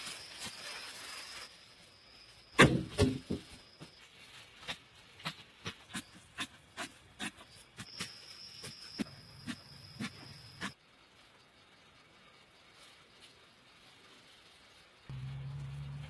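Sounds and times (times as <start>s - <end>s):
digging tool thudding into ground: 2.6s - 3.4s.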